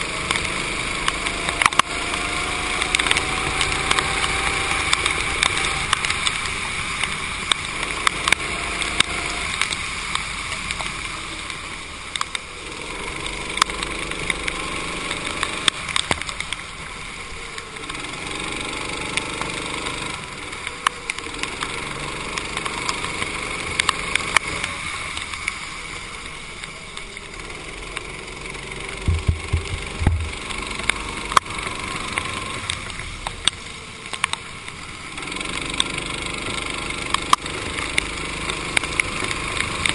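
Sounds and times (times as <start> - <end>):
kart engine accelerating: 0.0 - 10.1, 12.5 - 25.3, 27.0 - 33.6, 34.9 - 39.9
water spray from tyres: 0.0 - 39.9
sharp ticks: 0.2 - 10.9, 17.5 - 25.6, 26.2 - 39.9
low thumps: 29.0 - 30.4.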